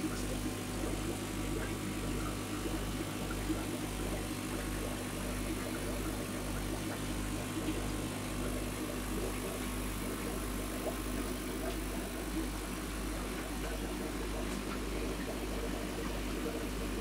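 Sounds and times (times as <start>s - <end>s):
aquarium pump hum: 0.0s - 17.0s.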